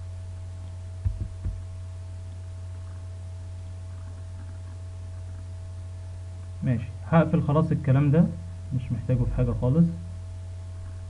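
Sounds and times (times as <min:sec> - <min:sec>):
low electrical hum: 0:00.0 - 0:11.0
soft low thumps: 0:00.9 - 0:03.2.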